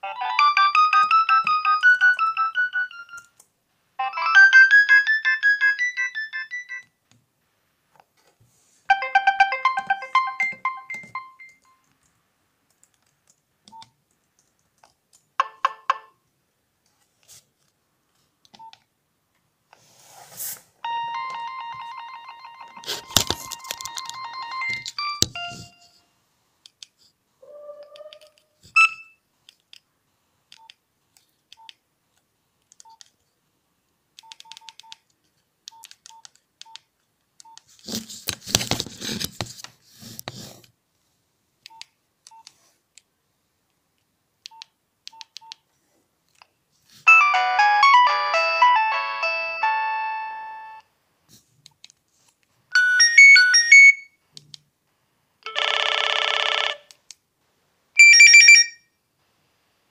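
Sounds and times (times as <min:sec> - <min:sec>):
phone keypad beeps: 0:58.0 - 0:58.8.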